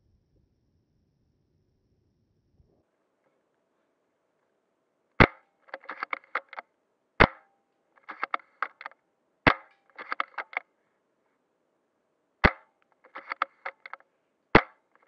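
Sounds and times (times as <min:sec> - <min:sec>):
airsoft gun shots: 0:05.2 - 0:06.6, 0:07.2 - 0:08.9, 0:09.5 - 0:10.6, 0:12.4 - 0:14.0, 0:14.6 - 0:15.0
small clicks: 0:05.2 - 0:07.4, 0:08.0 - 0:10.7, 0:12.4 - 0:15.0.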